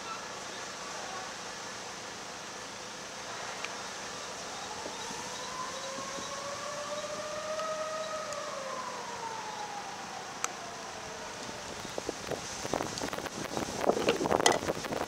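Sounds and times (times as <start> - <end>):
fire engine siren wailing: 4.4 - 11.9.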